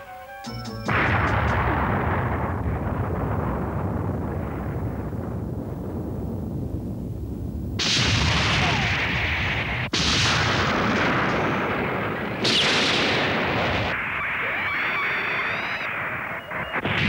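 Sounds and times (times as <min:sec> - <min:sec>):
low rumble: 0:00.9 - 0:08.5
cartoon explosion blasts: 0:00.9 - 0:17.0.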